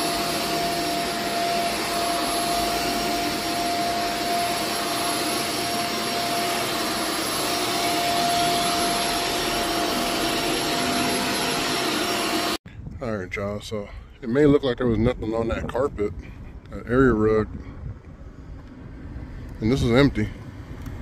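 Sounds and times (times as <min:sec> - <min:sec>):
vacuum cleaner running with whine: 0:00.0 - 0:12.6.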